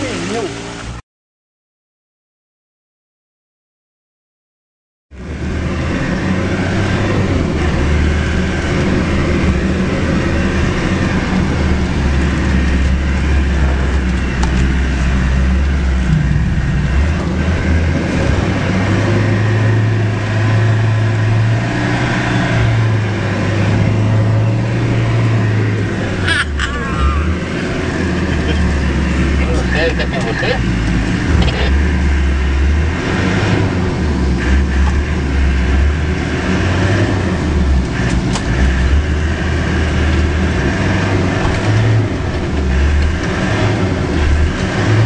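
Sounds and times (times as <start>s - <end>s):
vehicle engine running inside cab: 0.0s - 1.0s, 5.1s - 45.0s.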